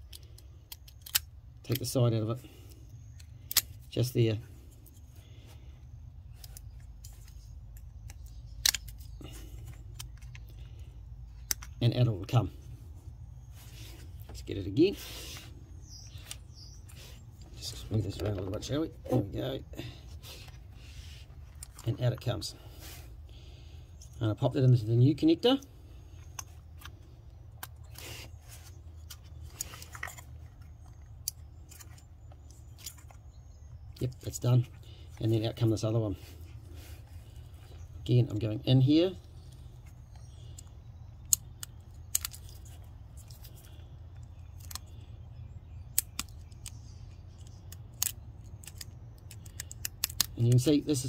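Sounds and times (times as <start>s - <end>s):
steady low hum: 0.0s - 51.0s
plastic connector clicks: 47.4s - 50.7s.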